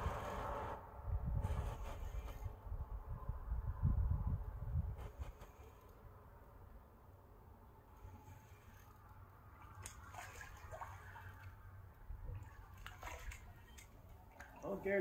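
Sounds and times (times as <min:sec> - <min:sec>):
low steady rumble: 0:00.0 - 0:15.0
water splashing and dripping: 0:08.8 - 0:15.0.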